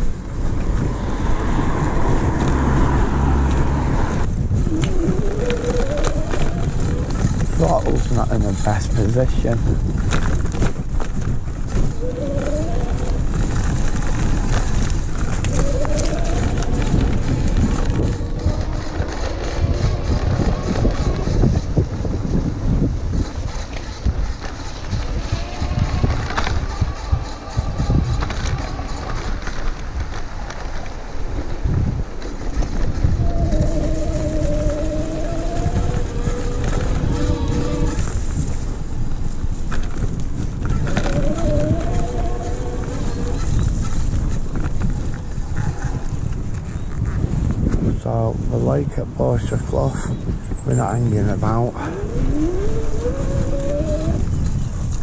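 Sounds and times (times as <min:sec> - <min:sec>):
electric hub motor whining: 0:00.0 - 0:46.6, 0:50.3 - 0:55.0
bike rumbling over dirt trail: 0:00.0 - 0:55.0
wind buffeting microphone: 0:00.0 - 0:55.0
electric motor whine: 0:51.8 - 0:54.7.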